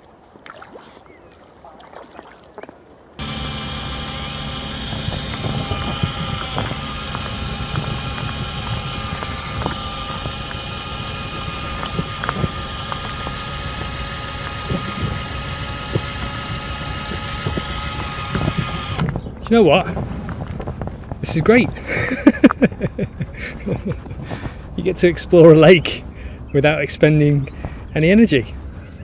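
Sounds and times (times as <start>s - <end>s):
drill motor whine: 3.2s - 19.2s.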